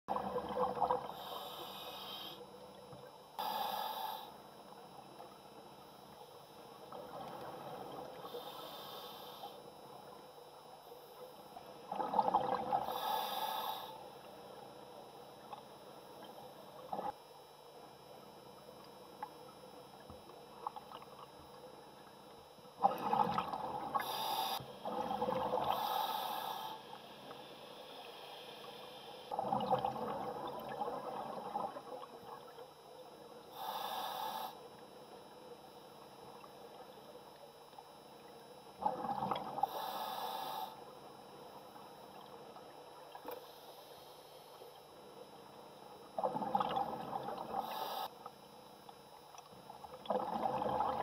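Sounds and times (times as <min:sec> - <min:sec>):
diver inhaling through regulator: 0:01.0 - 0:02.5, 0:03.4 - 0:04.5, 0:08.2 - 0:09.6, 0:12.7 - 0:14.2, 0:24.0 - 0:29.5, 0:33.5 - 0:34.7, 0:39.6 - 0:40.9, 0:47.5 - 0:48.2
exhaled bubbles rushing: 0:11.9 - 0:12.8, 0:22.8 - 0:24.0, 0:29.4 - 0:31.8, 0:50.1 - 0:51.0.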